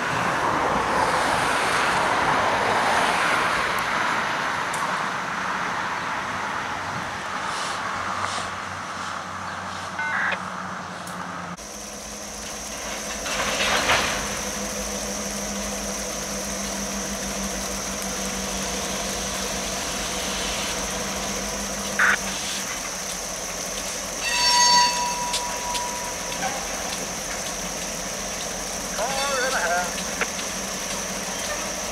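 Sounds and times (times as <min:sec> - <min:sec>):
freight train rumbling past: 0:00.0 - 0:31.9
steady high tone: 0:10.0 - 0:10.4, 0:14.3 - 0:22.5, 0:24.0 - 0:27.3.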